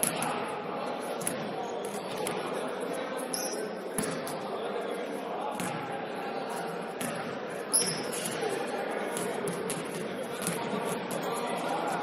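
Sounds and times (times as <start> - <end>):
basketball bouncing on gym floor: 5.6 - 5.8, 7.0 - 7.9.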